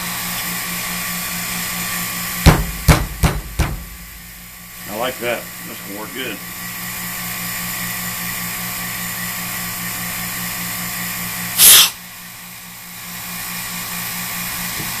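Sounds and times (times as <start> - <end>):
vacuum pump humming: 0.0 - 9.9
air hissing through valve: 11.6 - 12.0.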